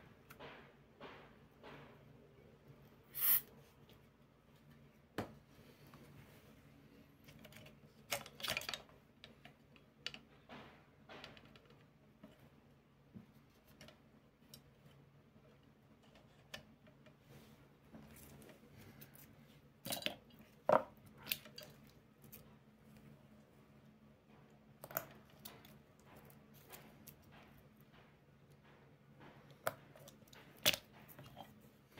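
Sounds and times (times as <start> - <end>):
clicks and clatters of metal and wood: 7.2 - 12.6, 13.2 - 17.2, 18.0 - 22.6, 24.2 - 31.7.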